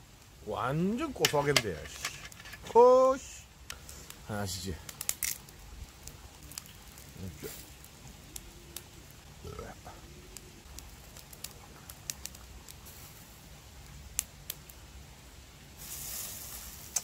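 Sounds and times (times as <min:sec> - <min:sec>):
fat crackling and popping: 0:00.0 - 0:17.0
voice murmuring: 0:09.4 - 0:10.6.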